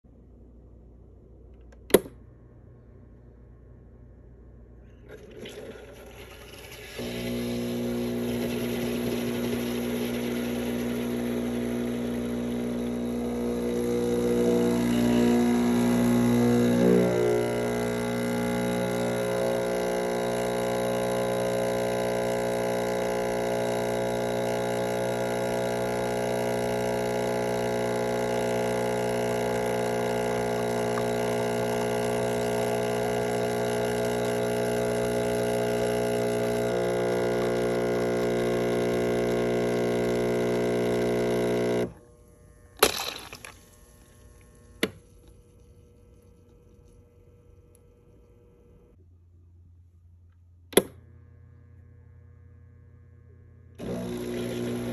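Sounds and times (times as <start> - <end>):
espresso machine pump humming: 5.1 - 42.0, 53.8 - 54.9.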